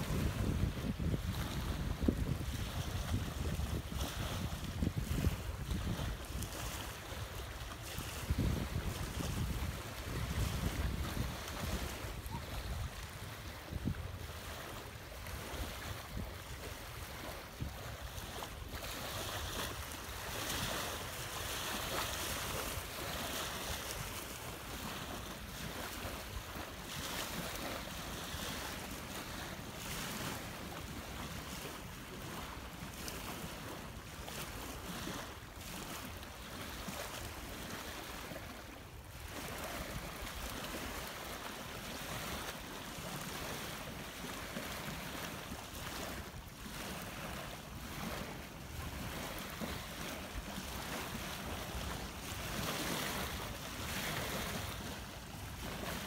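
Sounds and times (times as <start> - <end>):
wind buffeting microphone: 0.0 - 27.7
waves washing onto gravel: 0.0 - 38.3.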